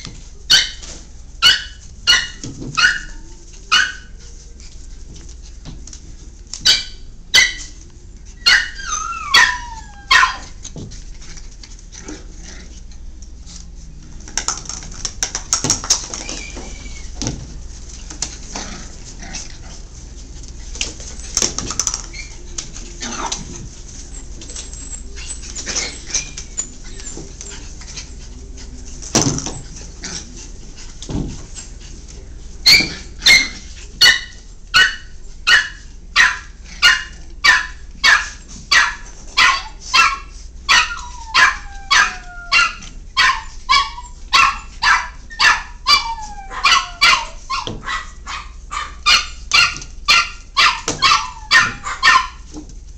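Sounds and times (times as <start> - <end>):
puppies scuffling and knocking: 0.0 - 52.9
puppy whines: 8.4 - 10.6, 16.0 - 17.3, 24.5 - 27.6, 39.4 - 44.7, 45.3 - 47.9, 50.6 - 52.3
puppy yapping: 8.4 - 10.6, 32.6 - 52.5.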